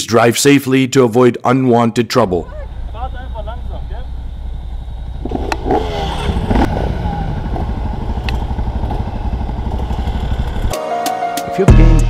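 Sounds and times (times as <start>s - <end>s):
dirt bike engine revving: 2.4s - 10.7s
sharp clicks: 8.2s - 8.4s.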